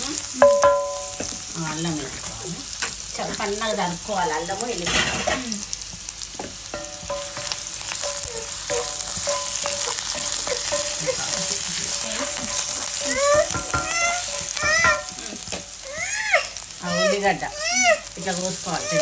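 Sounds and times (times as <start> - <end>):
garlic sizzling in oil: 0.0 - 19.0
wooden spatula scraping: 7.1 - 15.6.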